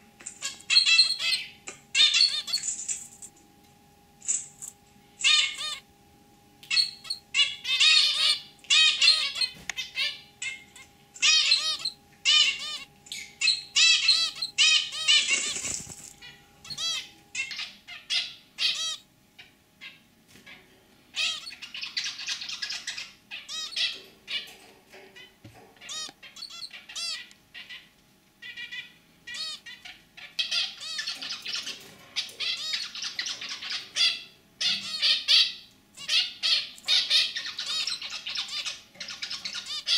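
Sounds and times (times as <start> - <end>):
finches calling: 0.2 - 2.7, 5.2 - 5.8, 6.6 - 19.0, 21.1 - 24.5, 28.4 - 39.9.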